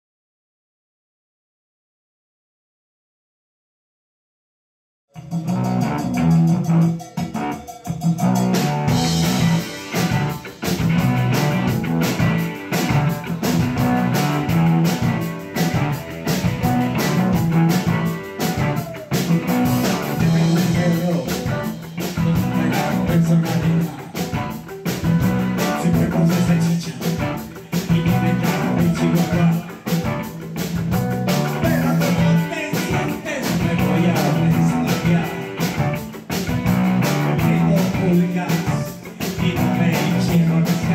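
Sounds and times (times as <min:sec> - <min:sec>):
bass: 0:05.2 - 0:40.9
drum kit: 0:05.2 - 0:40.9
electric guitars: 0:05.2 - 0:40.9
man singing: 0:16.3 - 0:24.6, 0:25.3 - 0:30.3, 0:31.3 - 0:35.9, 0:37.0 - 0:40.9.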